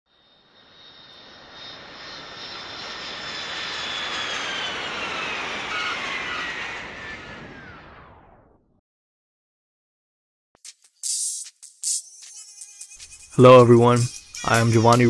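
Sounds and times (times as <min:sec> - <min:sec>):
jet airliner passing: 0:00.1 - 0:08.6
high engine whine: 0:00.1 - 0:08.7.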